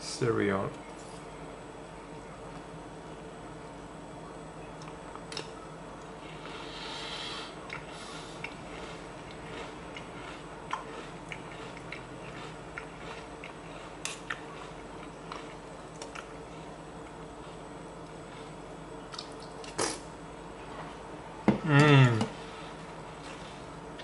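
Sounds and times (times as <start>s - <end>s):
steady low hum: 0.0s - 24.0s
person chewing cereal: 4.8s - 20.0s.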